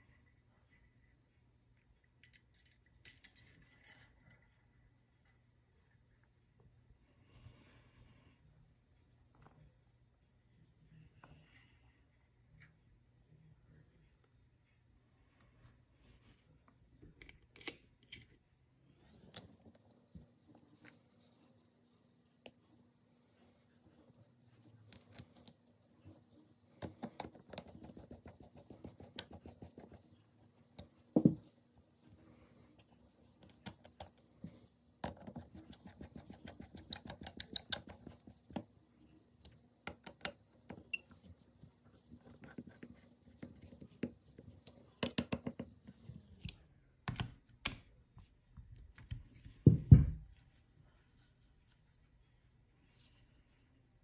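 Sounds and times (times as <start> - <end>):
small metal parts clicking and rattling: 2.2 - 4.7.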